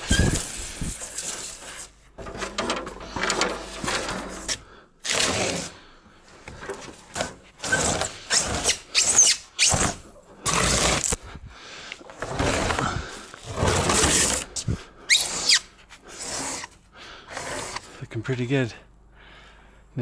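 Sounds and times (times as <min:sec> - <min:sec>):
brief squeak: 0:00.0 - 0:00.5
wooden board scraping on concrete: 0:00.0 - 0:11.2, 0:12.0 - 0:16.8.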